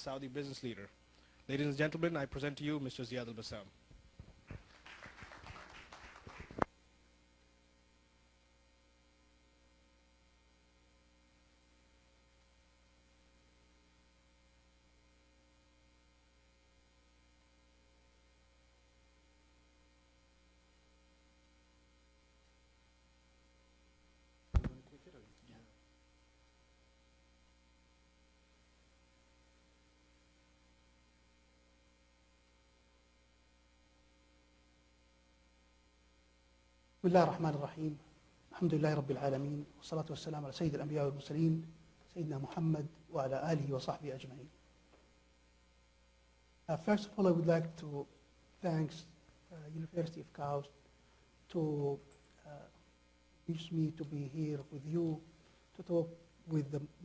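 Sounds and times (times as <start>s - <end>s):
mains hum from sound system: 0.0s - 57.0s
microphone knock: 24.5s - 24.8s
sharp click: 24.6s - 24.8s.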